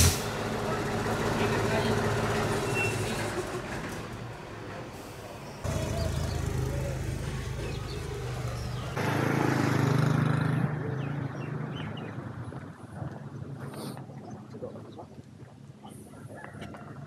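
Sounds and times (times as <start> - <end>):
vehicle engine running: 0.0 - 10.1.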